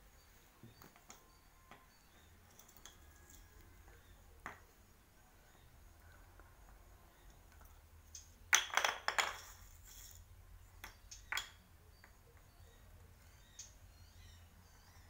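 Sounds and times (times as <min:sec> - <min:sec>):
light clinks and rattles: 0:02.3 - 0:03.6, 0:07.5 - 0:12.6
small object clicking on concrete: 0:10.8 - 0:12.5.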